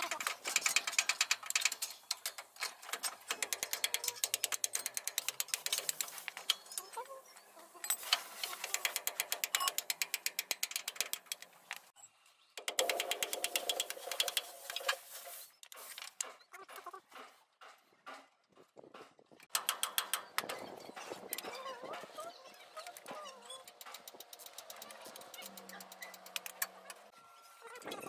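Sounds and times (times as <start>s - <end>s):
ratchet wrench clicking: 0.2s - 6.6s, 8.0s - 11.8s.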